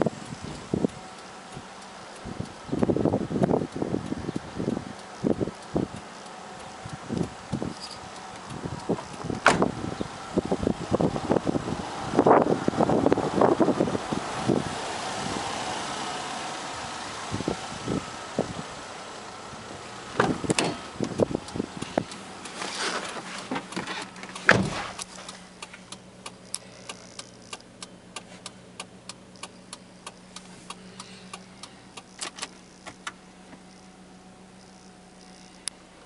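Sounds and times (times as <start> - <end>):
light regular ticks: 0.0 - 9.4, 20.5 - 35.9
wind on microphone: 6.8 - 15.6
car door shutting: 8.9 - 9.8, 20.1 - 25.8, 29.4 - 33.7.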